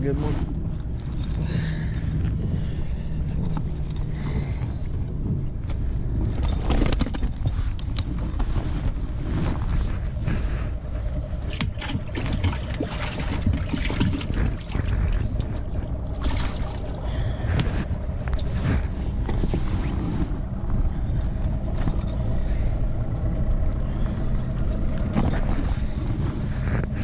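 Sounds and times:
low rumble: 0.0 - 27.0
scrapes: 0.1 - 12.1, 13.3 - 22.8
fabric rubbing on microphone: 7.4 - 11.2, 17.6 - 20.6.

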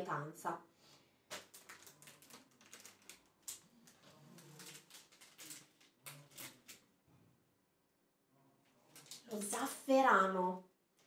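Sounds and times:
plastic bag crinkling: 1.2 - 6.9, 8.8 - 9.9.

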